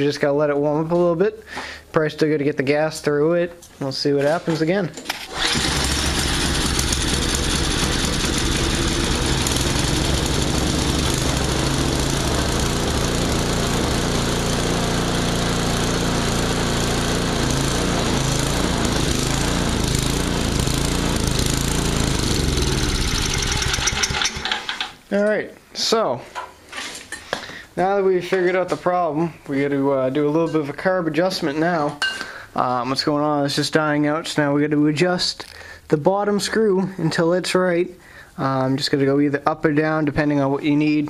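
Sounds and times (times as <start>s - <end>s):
snowblower engine running unevenly: 5.2s - 24.9s.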